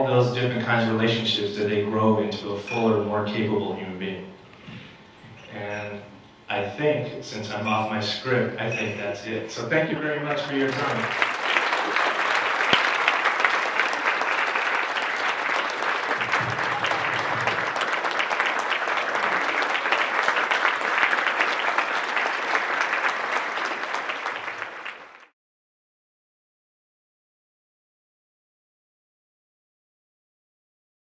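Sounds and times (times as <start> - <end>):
large audience applauding: 10.3 - 25.4.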